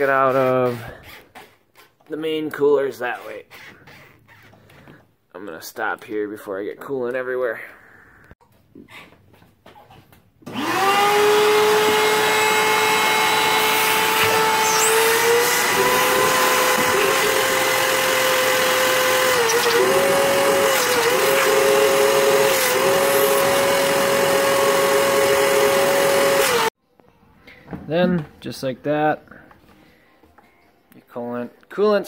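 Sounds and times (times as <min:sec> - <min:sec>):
shop vac motor running: 0:10.4 - 0:26.7.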